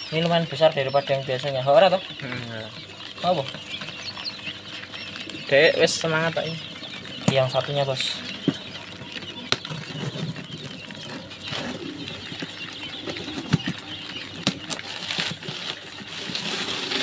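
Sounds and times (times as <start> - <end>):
cardboard rustling: 14.5 - 17.0.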